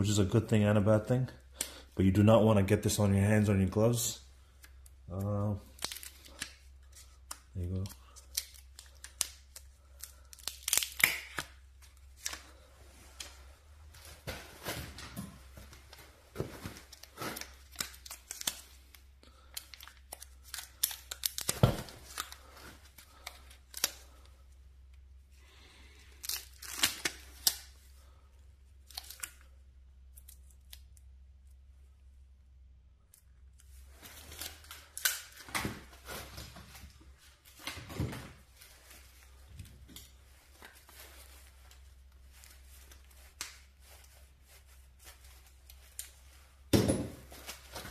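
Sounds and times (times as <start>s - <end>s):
paper tearing and crinkling: 5.7s - 11.5s, 16.7s - 18.7s, 19.3s - 22.5s, 26.2s - 27.6s.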